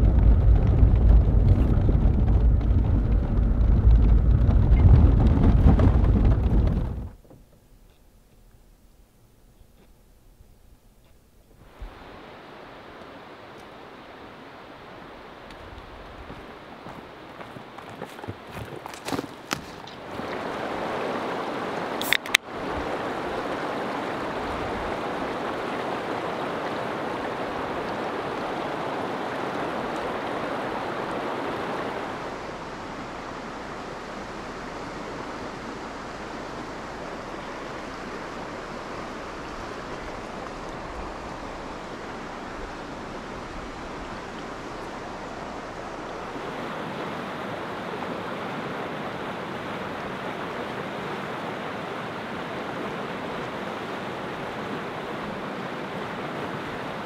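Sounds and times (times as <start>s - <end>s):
stream water rushing: 11.4s - 57.0s
sharp click: 22.0s - 22.4s.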